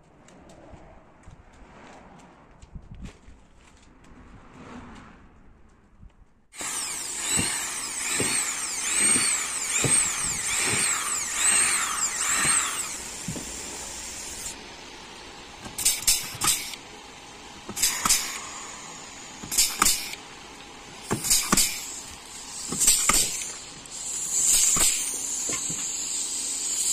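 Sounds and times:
power drill running: 0:06.6 - 0:26.9.

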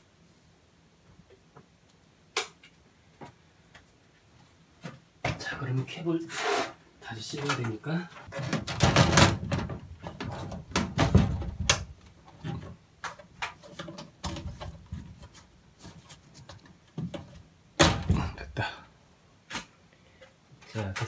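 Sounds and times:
plastic rubbing: 0:08.2 - 0:18.4.

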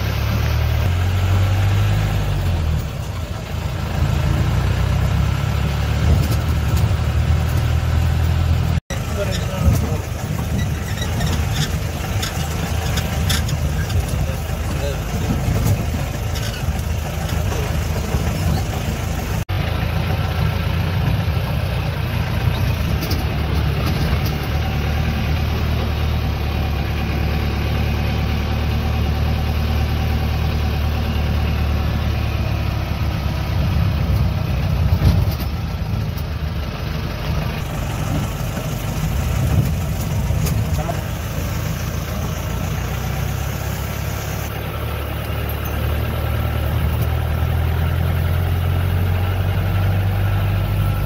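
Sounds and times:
engine drone with rattling: 0:00.0 - 0:51.0.

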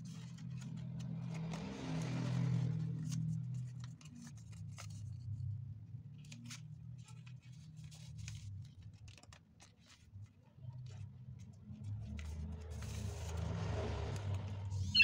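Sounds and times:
paper crackling and rustling: 0:00.0 - 0:05.5, 0:06.2 - 0:14.9.

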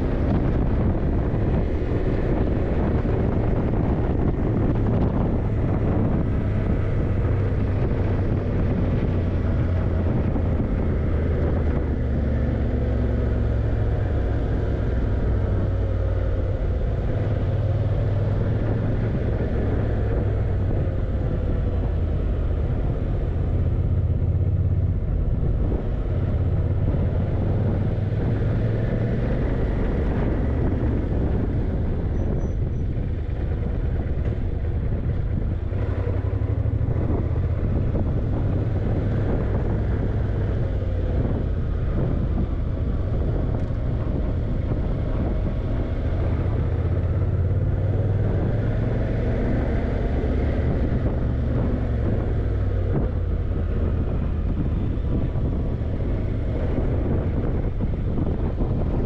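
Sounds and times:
motorcycle engine running: 0:00.0 - 0:59.0
wind rushing on microphone: 0:00.0 - 0:59.0.

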